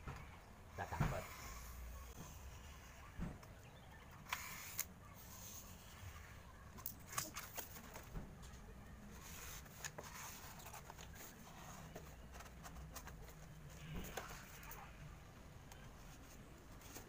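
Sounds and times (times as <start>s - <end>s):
knife cutting styrofoam: 4.2s - 6.0s.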